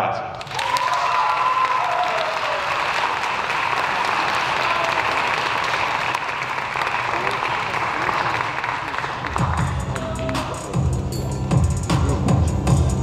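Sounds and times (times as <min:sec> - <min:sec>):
audience applauding: 0:00.4 - 0:10.5.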